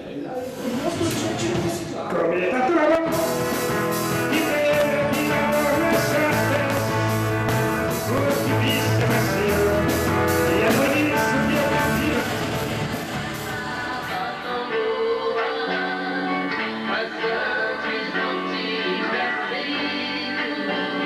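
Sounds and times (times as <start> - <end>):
man singing: 2.3 - 12.7, 14.0 - 15.7, 16.6 - 21.0
rock band playing: 3.0 - 15.0.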